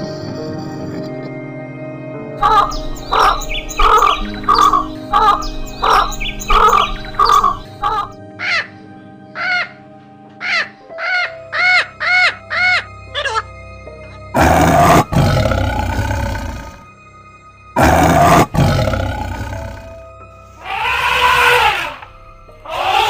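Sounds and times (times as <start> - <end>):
background music: 0.0 - 23.0
animal call: 2.4 - 8.7, 17.8 - 19.9, 20.6 - 23.0
macaw squawking: 2.4 - 8.7, 9.4 - 9.8, 10.4 - 13.4, 20.6 - 22.1, 22.7 - 23.0
tiger roaring: 14.4 - 16.8, 17.8 - 20.0, 20.6 - 22.1, 22.7 - 23.0.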